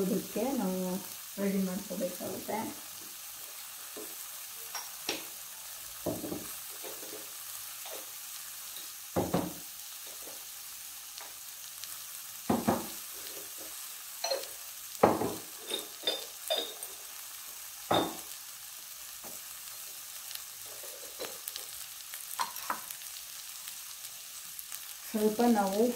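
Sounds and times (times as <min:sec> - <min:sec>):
frying sizzle: 0:00.0 - 0:25.9
spoon scraping pan: 0:06.1 - 0:09.0, 0:12.6 - 0:17.2, 0:19.8 - 0:23.2.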